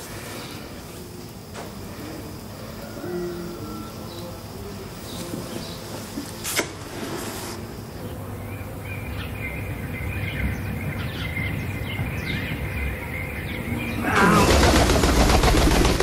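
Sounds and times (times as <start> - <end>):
small birds chirping: 0.0 - 6.5, 7.6 - 15.2
crow wings flapping: 14.0 - 16.0.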